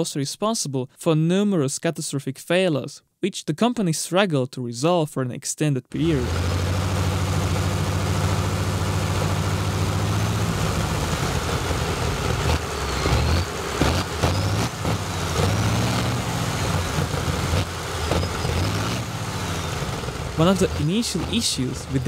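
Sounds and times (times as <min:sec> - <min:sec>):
radial engine deep rumble: 0:06.0 - 0:22.0
engine sharp pops: 0:06.3 - 0:22.0.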